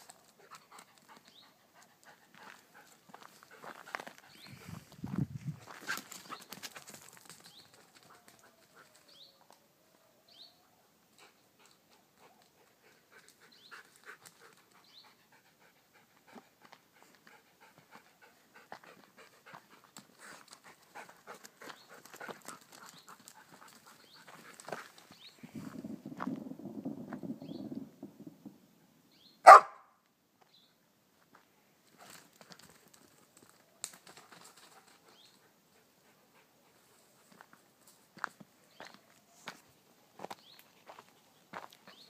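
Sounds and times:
footsteps on stony dirt trail: 0:02.2 - 0:07.7, 0:18.7 - 0:26.4, 0:37.3 - 0:42.0
dog panting: 0:11.2 - 0:25.0.

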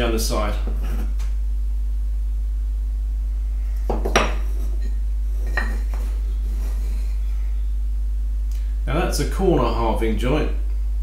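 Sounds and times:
steady low hum: 0:00.0 - 0:11.0
wooden pieces knocking: 0:03.9 - 0:04.5.

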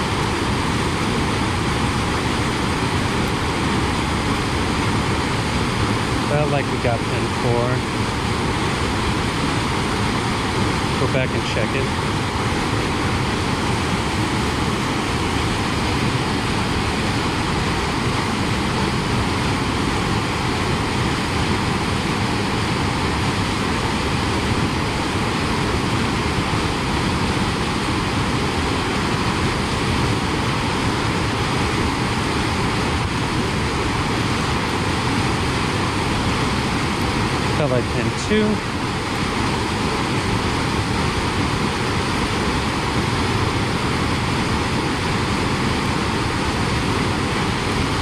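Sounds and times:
whitewater rushing in creek: 0:00.0 - 0:48.0.

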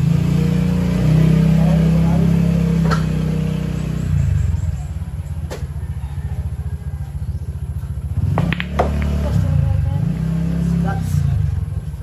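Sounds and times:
engine rumbling: 0:00.0 - 0:12.0
pool balls clicking: 0:08.4 - 0:09.2.

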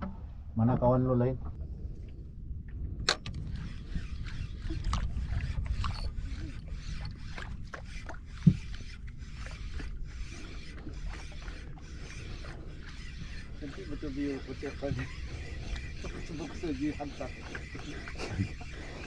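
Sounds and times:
wind and water rumble: 0:00.0 - 0:19.0
fishing reel winding: 0:03.3 - 0:19.0.

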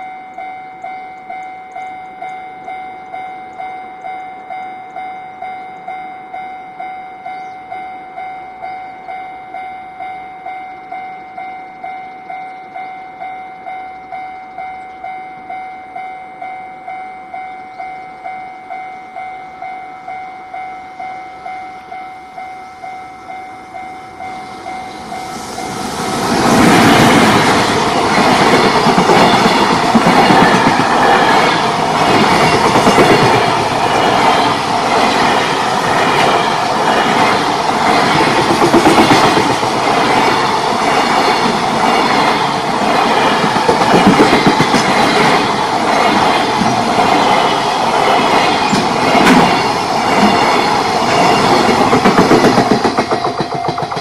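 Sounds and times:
level crossing bell ringing: 0:00.0 - 0:25.8
freight train passing: 0:00.0 - 0:54.0
wheels clattering over rail joints: 0:48.6 - 0:54.0.

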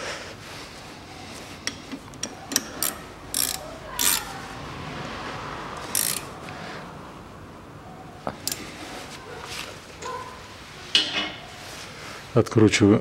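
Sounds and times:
spanner clicking on bolt: 0:01.6 - 0:04.3, 0:05.9 - 0:06.3, 0:08.4 - 0:08.6.

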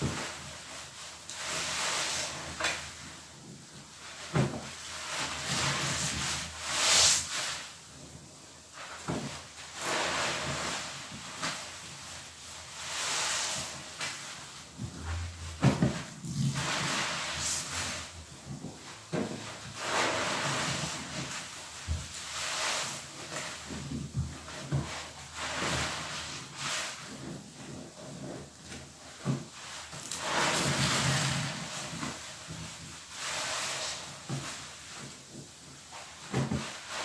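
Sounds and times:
foam fizzing: 0:09.7 - 0:11.8, 0:19.7 - 0:27.6, 0:29.4 - 0:34.9.

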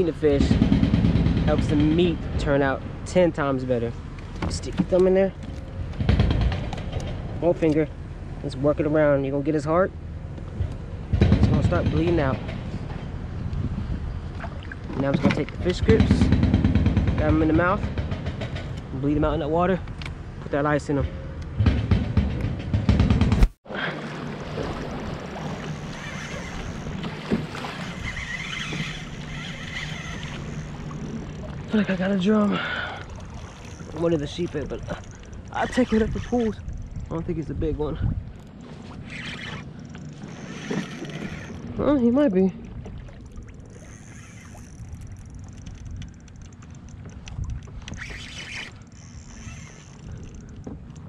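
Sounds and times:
water lapping against hull: 0:10.1 - 0:19.1, 0:23.6 - 0:51.0
wind on microphone: 0:10.5 - 0:17.9, 0:33.2 - 0:43.1, 0:47.0 - 0:50.9
wind buffeting microphone: 0:10.5 - 0:23.5, 0:24.6 - 0:48.3
steady low hum: 0:21.0 - 0:51.0.

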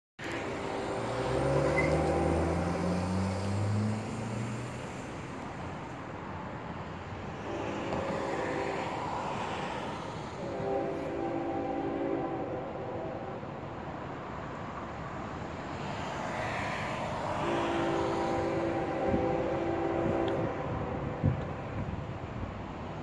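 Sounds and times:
steady traffic hum: 0:00.2 - 0:23.0
car accelerating past: 0:00.8 - 0:05.0.

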